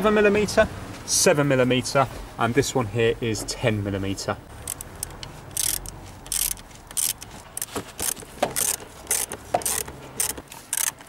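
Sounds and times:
socket ratchet clicking: 4.6 - 11.0.

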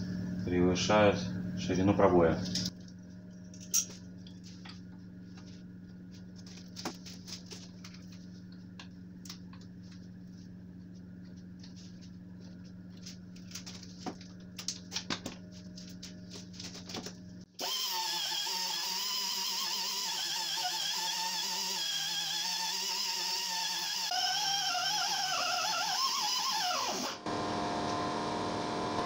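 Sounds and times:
steady low hum: 0.0 - 17.6.

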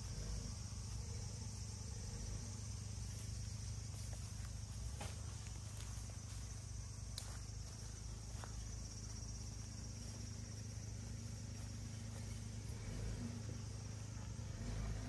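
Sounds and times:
car engine humming: 0.0 - 15.0
insects trilling: 0.0 - 15.0.

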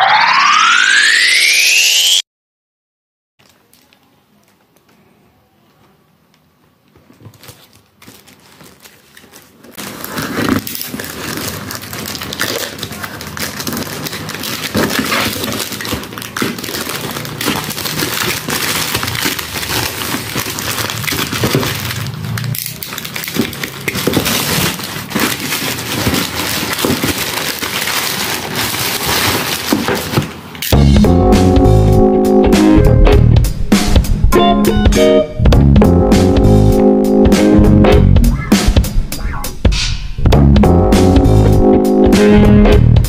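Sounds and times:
plastic bag crinkling: 7.1 - 30.6.

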